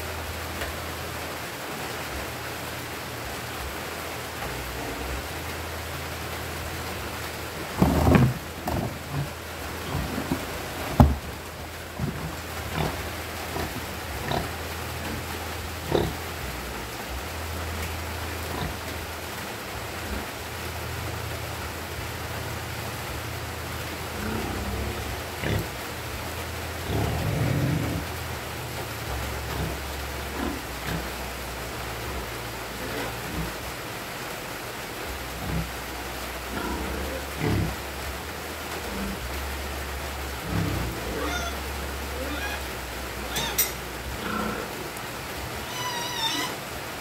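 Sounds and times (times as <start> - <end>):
piglets grunting: 7.7 - 11.3, 12.0 - 16.3, 26.8 - 28.1, 36.5 - 37.9, 40.4 - 44.8, 45.6 - 46.6.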